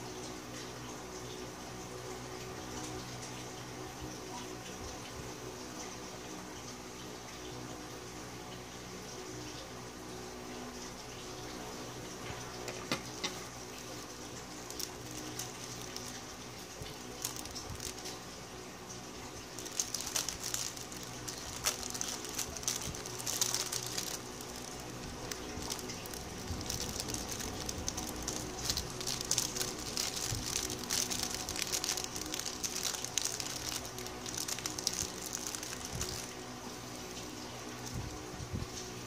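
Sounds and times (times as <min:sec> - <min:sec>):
plastic bag crinkling: 0:13.2 - 0:18.3, 0:19.2 - 0:36.5, 0:37.2 - 0:38.3.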